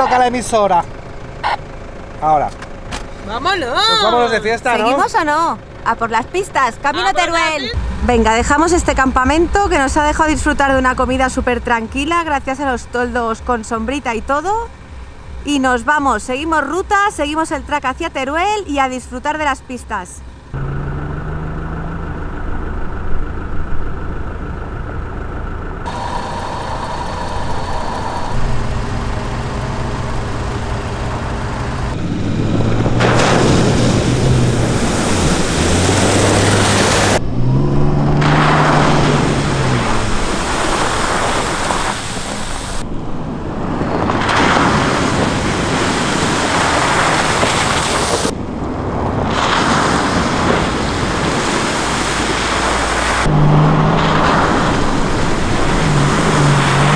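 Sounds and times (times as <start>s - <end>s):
vehicle engine: 0.0s - 56.9s
tyre and wind noise: 31.9s - 56.9s.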